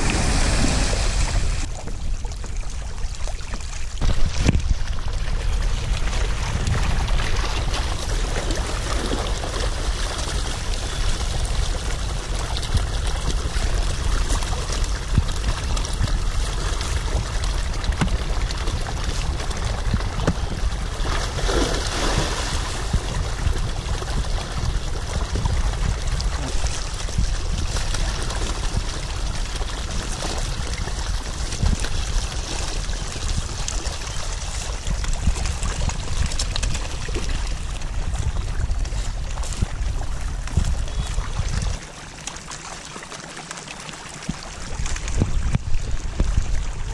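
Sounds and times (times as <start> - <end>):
fish splashing at water surface: 0.0 - 1.9, 6.0 - 38.1.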